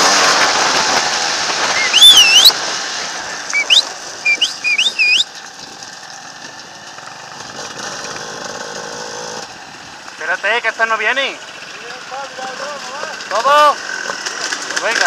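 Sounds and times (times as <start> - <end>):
high wavering whistles: 1.7 - 2.6, 3.5 - 5.3.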